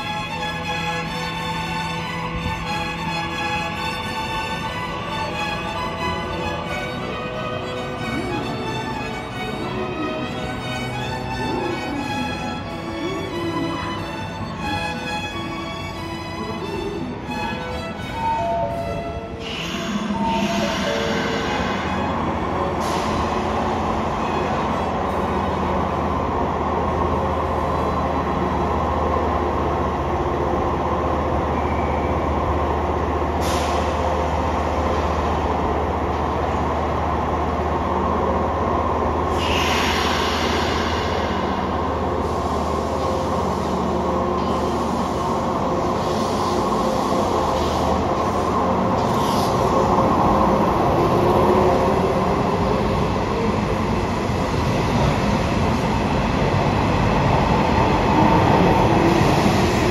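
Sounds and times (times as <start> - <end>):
electric train hum: 0.0 - 59.9
air hiss bursts: 39.3 - 43.8.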